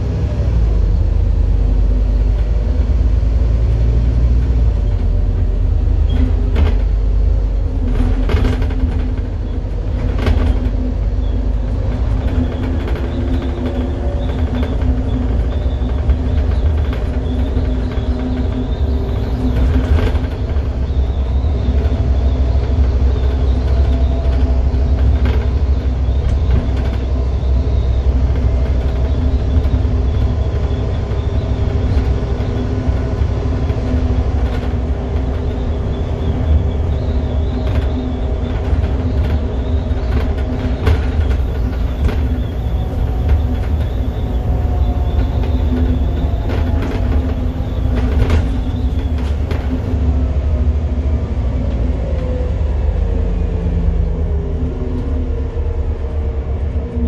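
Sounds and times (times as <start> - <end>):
bus diesel engine droning: 0.0 - 57.0
road rumble: 0.0 - 57.0
bodywork knocks and rattles: 2.1 - 50.1.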